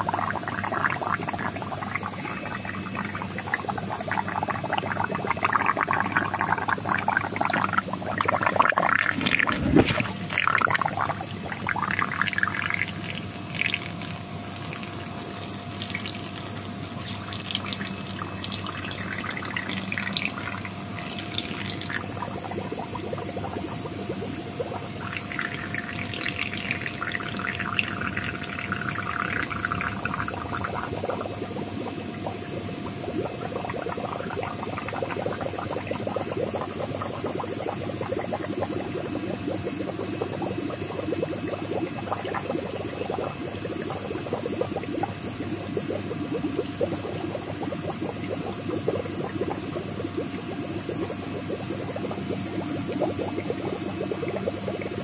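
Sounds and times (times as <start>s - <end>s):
fish splashing in a tub: 6.8s - 24.0s.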